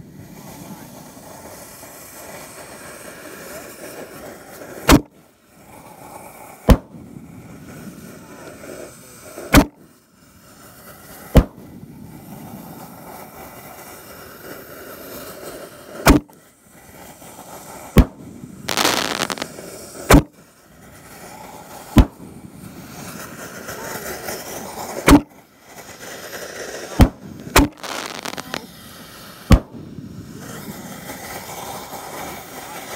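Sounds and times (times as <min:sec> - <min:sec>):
hiss burst: 0:00.0 - 0:32.9
firework shells booming: 0:04.9 - 0:05.1, 0:06.7 - 0:07.1, 0:09.5 - 0:09.8, 0:11.4 - 0:11.7, 0:16.0 - 0:16.3, 0:18.0 - 0:20.4, 0:21.9 - 0:22.7, 0:25.0 - 0:25.4, 0:26.9 - 0:28.7, 0:29.4 - 0:30.5.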